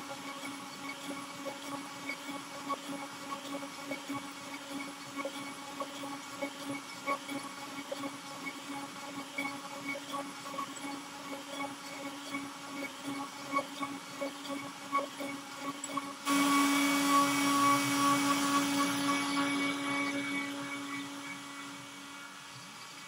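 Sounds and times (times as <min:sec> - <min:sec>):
router spindle whining: 0:14.4 - 0:22.6.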